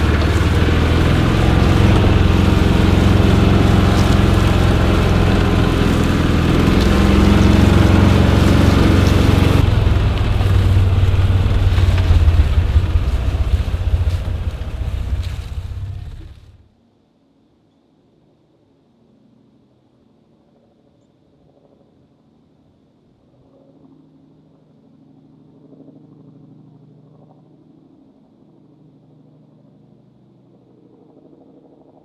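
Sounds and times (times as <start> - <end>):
off-road vehicle engine running: 0.0 - 16.7.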